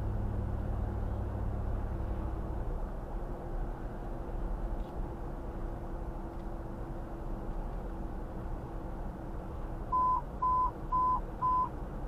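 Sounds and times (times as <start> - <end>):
vehicle road and engine noise: 0.0 - 12.0
short electronic beeps: 9.9 - 11.7.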